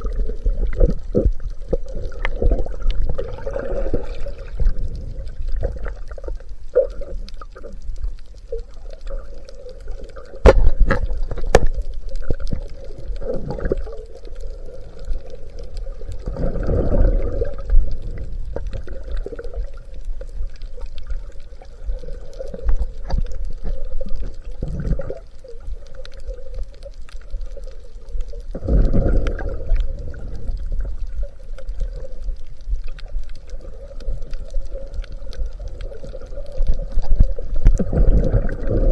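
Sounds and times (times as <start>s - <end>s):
underwater water rushing: 0.0s - 38.9s.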